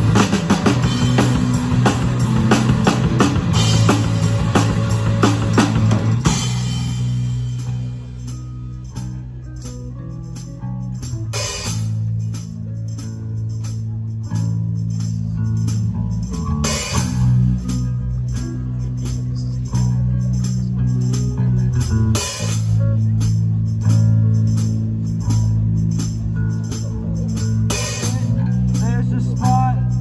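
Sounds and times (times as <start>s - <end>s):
rock band playing live: 0.0s - 30.0s.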